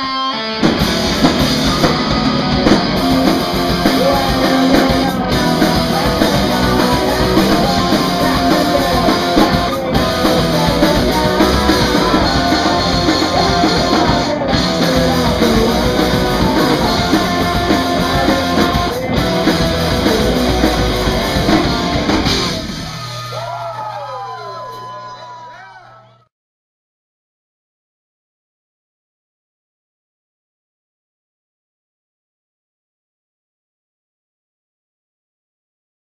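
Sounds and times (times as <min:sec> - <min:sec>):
electric guitar: 0:00.0 - 0:25.1
drums: 0:00.0 - 0:26.2
singer at microphone: 0:03.1 - 0:22.1.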